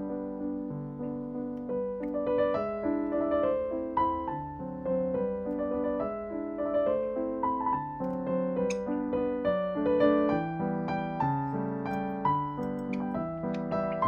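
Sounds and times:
gentle piano music: 0.0s - 14.0s.

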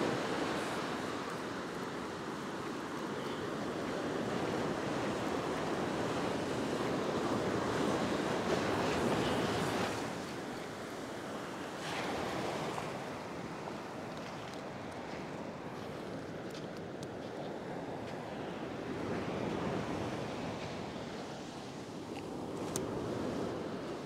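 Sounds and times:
ocean surf breaking: 0.0s - 16.6s.

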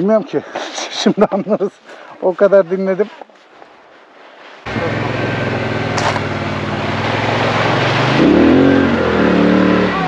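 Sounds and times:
water splashing around wheels: 3.2s - 10.0s
quad engine running: 4.7s - 10.0s.

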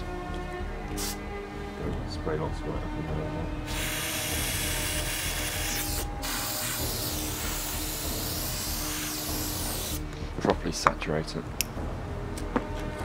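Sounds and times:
aerosol can spraying: 0.9s - 1.2s, 3.7s - 10.0s.

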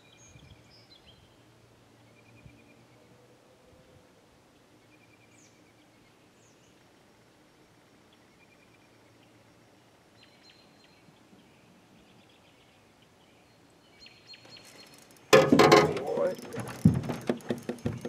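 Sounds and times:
clatter and rustle in boat: 14.5s - 18.0s
knocks against metal hull: 15.4s - 18.0s.

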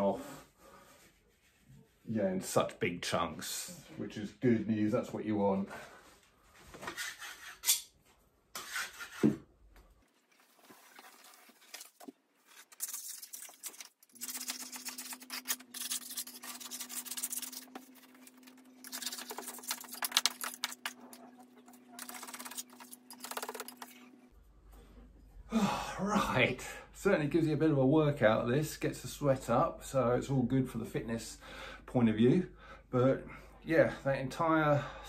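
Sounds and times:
wallpaper scraping and tearing: 6.7s - 7.8s, 8.6s - 9.3s, 10.2s - 24.1s.

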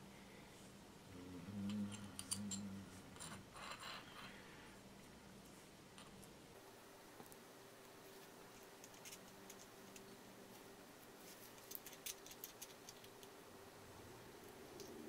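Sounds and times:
faint low hum: 0.0s - 15.0s
porcelain pieces clicking together: 1.7s - 4.0s, 8.8s - 10.1s, 11.6s - 13.4s.

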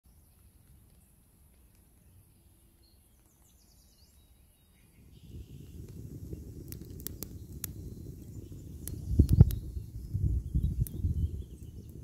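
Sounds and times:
faint bird chirps: 0.1s - 5.8s, 7.1s - 12.0s
campfire crackling and popping: 0.3s - 2.4s, 4.8s - 12.0s.

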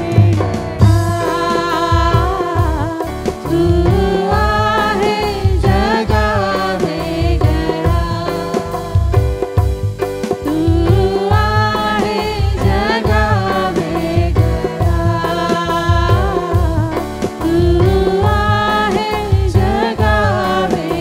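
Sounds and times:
women singing into microphones: 0.0s - 9.6s, 10.4s - 21.0s
keyboard chords: 0.0s - 21.0s.

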